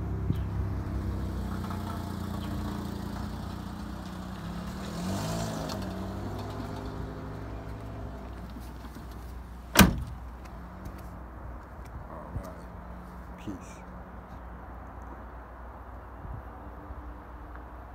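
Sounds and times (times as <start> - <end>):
vehicle driving past: 0.0 - 8.9
engine running with low hum: 0.0 - 11.2.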